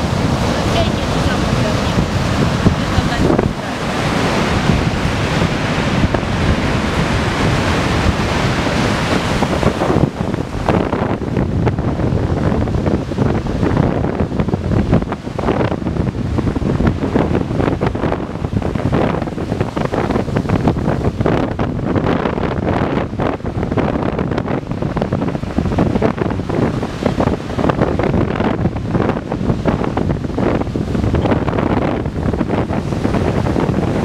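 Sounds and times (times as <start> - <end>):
surf breaking on beach: 0.0 - 34.0
wind buffeting microphone: 0.0 - 34.0.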